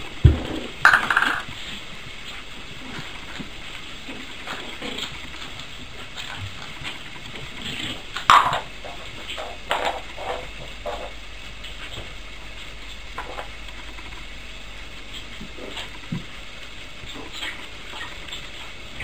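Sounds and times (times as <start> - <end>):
puppies scuffling on tiled floor: 1.4 - 11.1.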